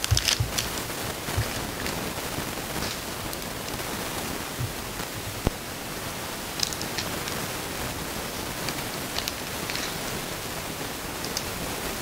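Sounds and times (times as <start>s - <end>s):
foil pack crinkling: 0.0s - 5.5s
steady hiss: 0.0s - 12.0s.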